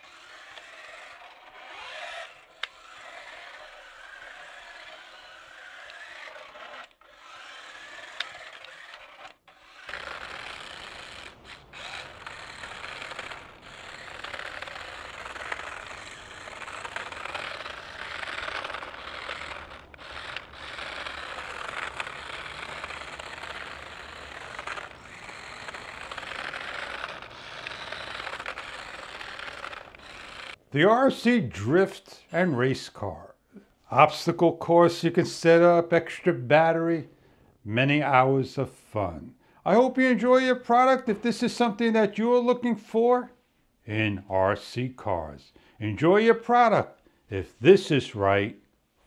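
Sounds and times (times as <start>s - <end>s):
toy car skidding on carpet: 0.0s - 32.1s, 39.6s - 42.6s
toy car tyres scraping asphalt: 0.0s - 33.2s, 33.8s - 36.8s, 39.6s - 43.1s, 45.9s - 48.3s.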